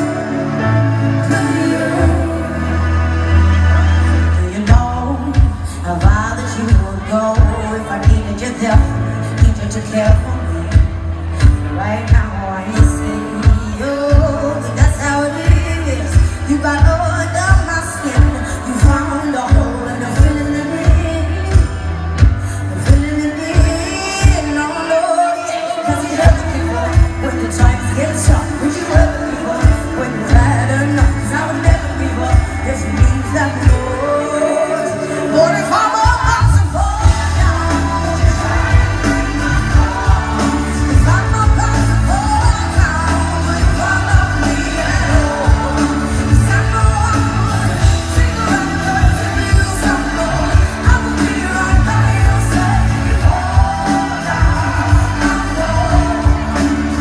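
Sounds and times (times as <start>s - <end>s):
live pop band: 0.0s - 57.0s.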